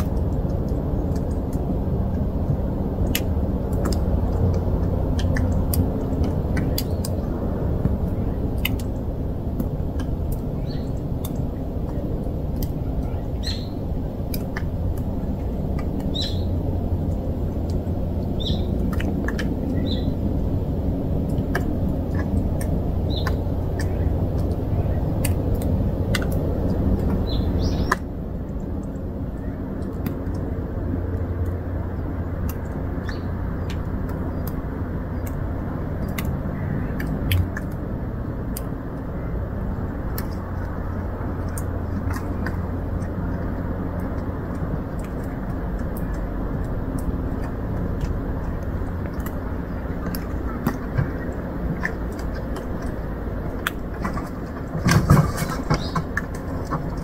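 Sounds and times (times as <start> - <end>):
low outdoor rumble: 0.0 - 57.0.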